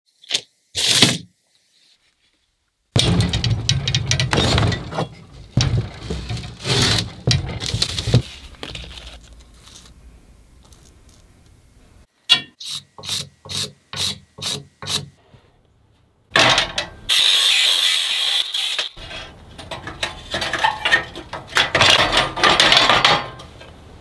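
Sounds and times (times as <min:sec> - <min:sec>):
metal springs scraping on bench: 0:03.7 - 0:08.2.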